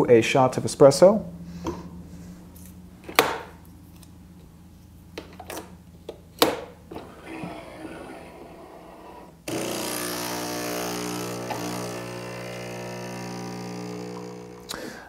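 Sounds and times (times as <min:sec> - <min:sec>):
espresso machine pump buzzing: 0:07.0 - 0:14.8.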